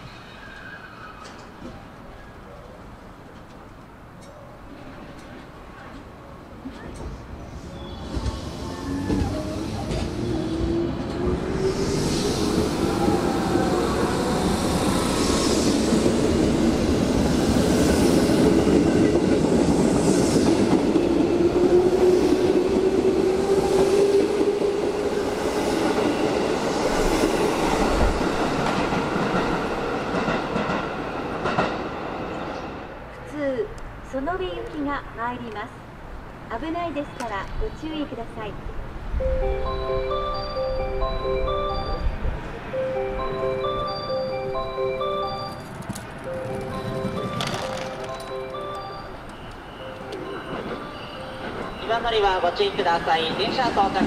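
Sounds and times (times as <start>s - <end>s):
train rumble: 0.0s - 34.0s, 38.5s - 54.0s
wheel clatter at rail joints: 45.5s - 54.0s.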